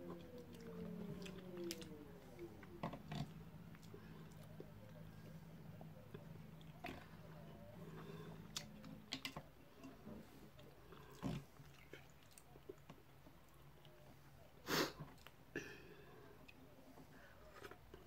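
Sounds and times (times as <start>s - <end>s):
chewing and mouth sounds: 0.0s - 14.1s.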